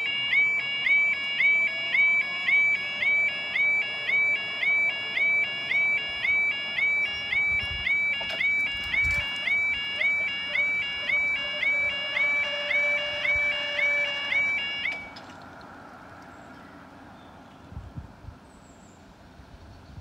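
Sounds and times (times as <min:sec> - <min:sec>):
level crossing alarm warbling: 0:00.0 - 0:15.2.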